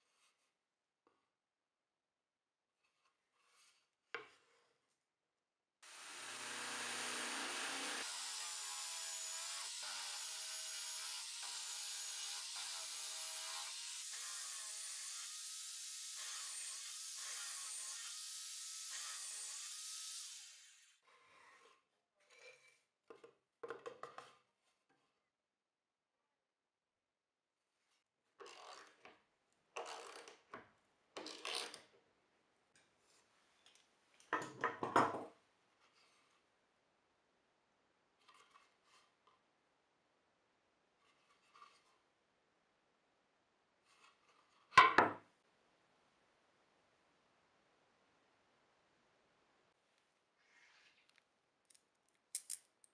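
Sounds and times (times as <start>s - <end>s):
scraping rubs on workbench: 2.8s - 4.6s
electric drill whining: 5.9s - 10.3s
drill bit boring into plywood: 5.9s - 11.8s
board knock: 44.8s - 45.2s.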